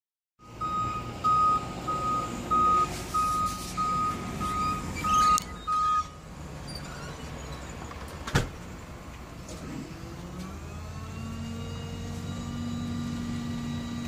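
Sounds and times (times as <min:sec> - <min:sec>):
truck backup alarm beeping: 0:00.4 - 0:08.1, 0:10.8 - 0:14.0
truck engine rumble: 0:00.4 - 0:14.0.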